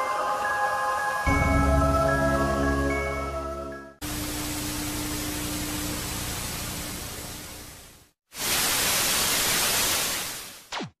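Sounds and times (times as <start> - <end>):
low hum: 1.3 - 8.0
falling whine: 4.0 - 7.9
television static hiss: 4.1 - 10.8.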